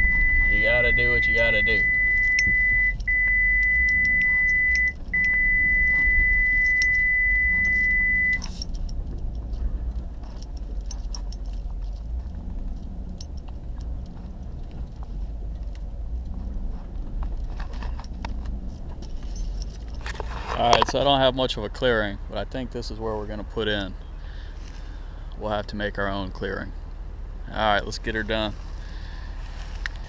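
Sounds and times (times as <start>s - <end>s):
high-pitched electronic warning tone: 0.0s - 8.6s
vehicle driving through brush: 0.0s - 21.8s, 23.0s - 26.0s, 26.6s - 30.0s
truck engine rumble: 0.0s - 30.0s
light clicking and rattling: 8.4s - 21.1s.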